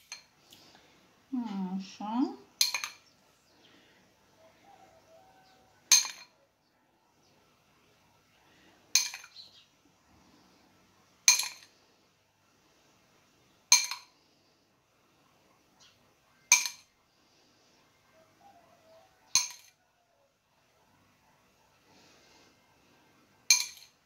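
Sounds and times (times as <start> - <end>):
fork clinking on ceramic bowl: 19.3 - 19.7, 23.5 - 23.9.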